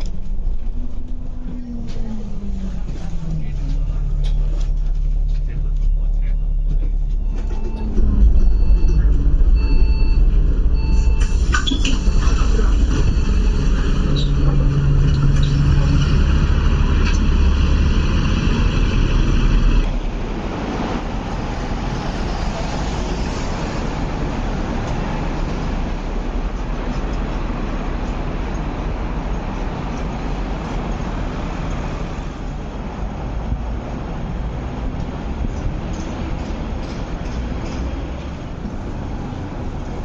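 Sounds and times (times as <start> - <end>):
bus engine rumbling: 0.0 - 40.0
city street traffic: 0.0 - 40.0
short electronic beeps: 5.8 - 12.2.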